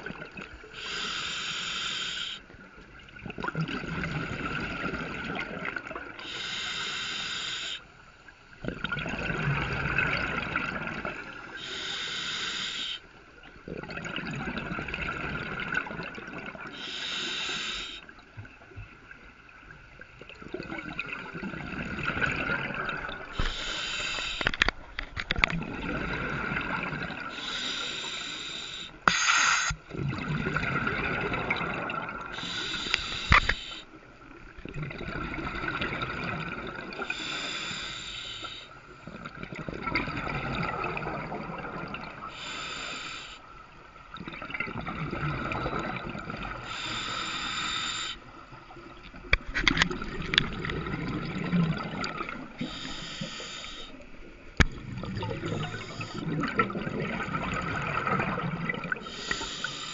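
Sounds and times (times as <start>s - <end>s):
regulator hiss on inhale: 0.6s - 2.5s, 6.2s - 8.0s, 11.4s - 13.2s, 16.7s - 18.2s, 23.3s - 25.2s, 27.2s - 29.9s, 32.3s - 34.0s, 37.0s - 39.1s, 42.3s - 43.7s, 46.6s - 48.5s, 52.4s - 54.6s, 55.4s - 56.4s, 58.9s - 59.9s
bubbling exhales underwater: 8.6s - 11.4s, 20.3s - 24.6s, 25.3s - 27.6s, 29.1s - 33.8s, 34.6s - 37.4s, 39.1s - 42.6s, 44.1s - 47.2s, 48.8s - 53.9s, 54.5s - 59.9s.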